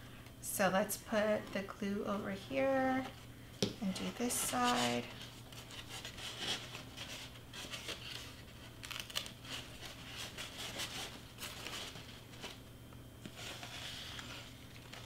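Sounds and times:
paper rustling and crinkling: 3.9 - 15.0.

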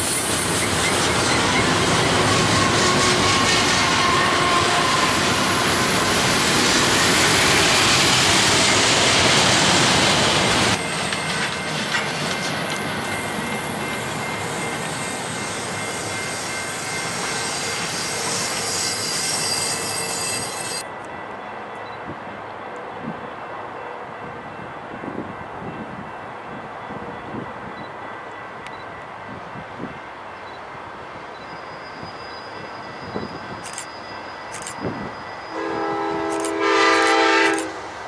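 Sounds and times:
freight train wheels rumbling: 0.0 - 38.0
wheel squeal: 17.2 - 20.8.

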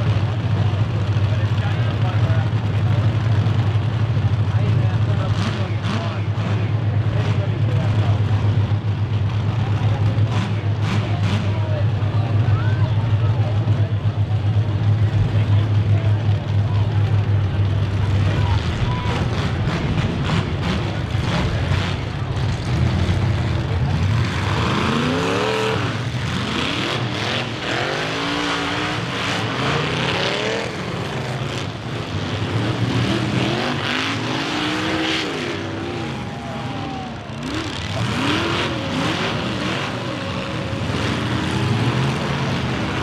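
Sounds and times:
car engines revving: 0.0 - 43.0
low engine rumble: 0.0 - 43.0.

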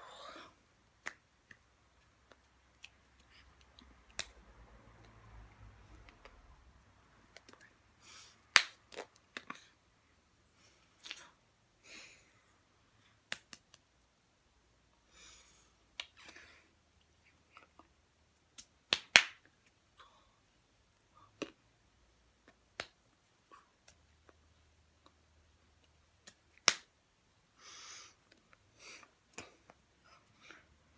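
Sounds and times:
hands slapping: 1.0 - 4.4, 8.5 - 9.5, 13.2 - 14.0, 15.9 - 16.5, 18.4 - 19.5, 22.4 - 23.2, 26.1 - 26.9.

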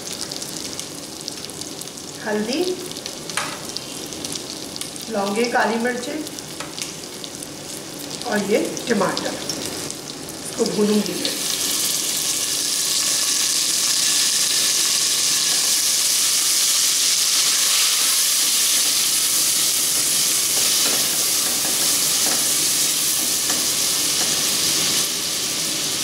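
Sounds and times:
food sizzling in oil: 0.0 - 26.0.

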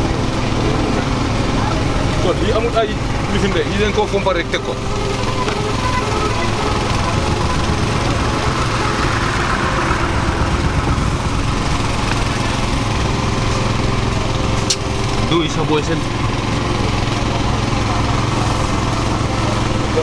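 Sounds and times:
small motor humming: 4.6 - 20.0.

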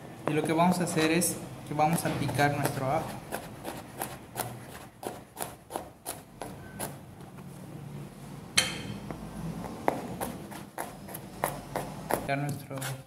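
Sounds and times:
knife chopping on cutting board: 1.9 - 7.0, 8.6 - 13.0.

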